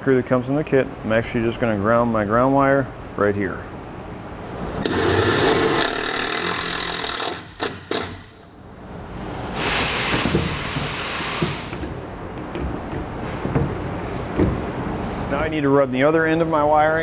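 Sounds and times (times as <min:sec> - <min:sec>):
cordless drill driving screw: 0:04.8 - 0:08.2.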